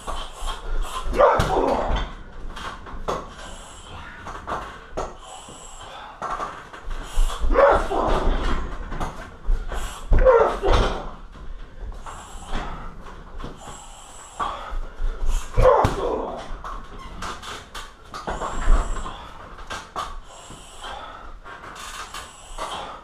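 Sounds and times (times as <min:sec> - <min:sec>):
person grunting shout of effort: 0:01.1 - 0:02.1, 0:07.5 - 0:08.4, 0:10.1 - 0:11.1, 0:15.5 - 0:16.6.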